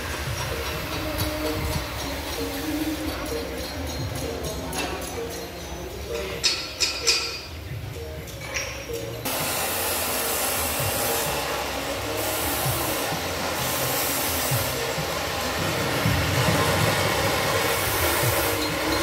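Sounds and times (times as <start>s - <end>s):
loud rushing hiss of workshop: 0.0s - 4.7s, 9.2s - 19.0s.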